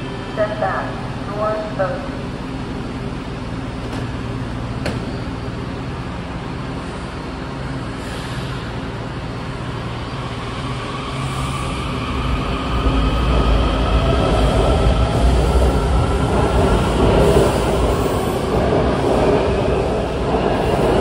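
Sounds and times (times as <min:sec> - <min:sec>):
train humming at platform: 0:00.0 - 0:21.0.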